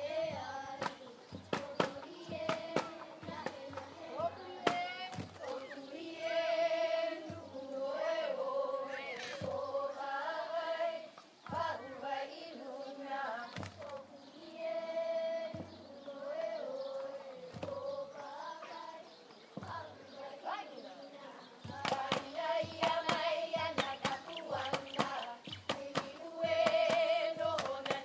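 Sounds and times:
drum beat: 0.0 - 8.0, 9.3 - 9.9, 11.5 - 12.0, 13.6 - 14.0, 15.4 - 15.9, 17.5 - 18.0, 19.6 - 20.0, 21.6 - 28.0
chant in wavering held notes: 0.0 - 28.0.

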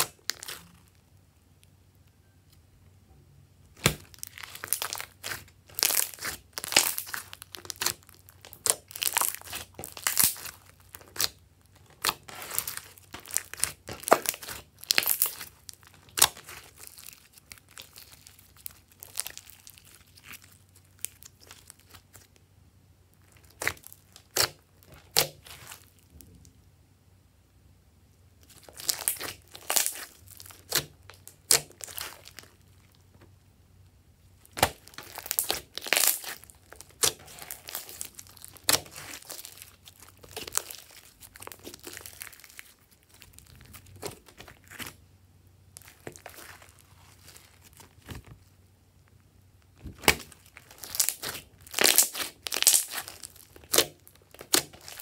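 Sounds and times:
slime clicking and crackling: 0.0 - 1.0, 3.7 - 22.4, 23.2 - 26.1, 28.4 - 33.0, 34.4 - 45.0, 45.8 - 48.4, 49.1 - 55.0.

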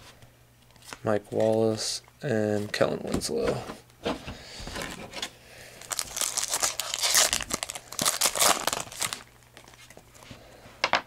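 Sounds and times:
foil wrapper tearing and crinkling: 5.8 - 10.0.

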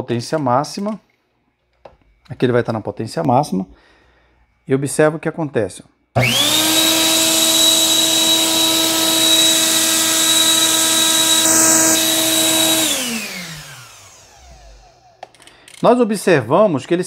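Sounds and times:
blender motor whining: 6.2 - 15.4.

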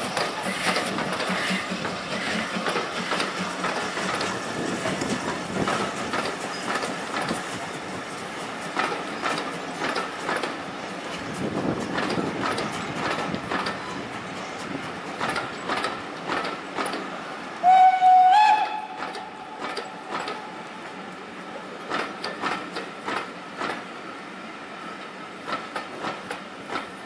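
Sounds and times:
steady train rumble: 0.0 - 27.0
train wheels clicking over rail joints: 0.0 - 27.0
steam whistle: 17.6 - 19.4.

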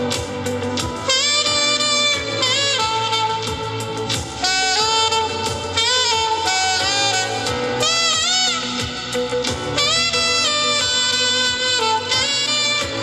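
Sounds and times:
backing beat: 0.0 - 13.0
saxophone melody: 0.0 - 13.0.

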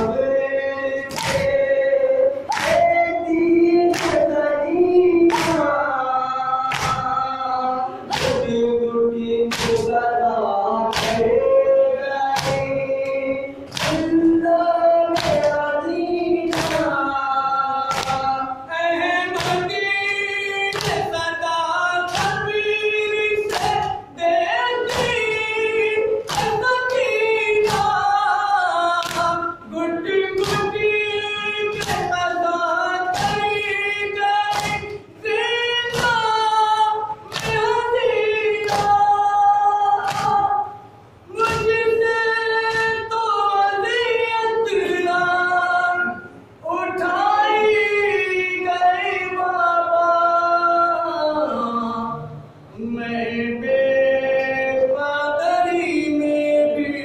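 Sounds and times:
men singing a lament: 0.0 - 57.0
chest-beating slaps: 1.1 - 1.6, 2.5 - 3.0, 9.5 - 9.9, 13.7 - 14.2, 26.3 - 26.7, 34.5 - 35.0, 40.0 - 40.4.

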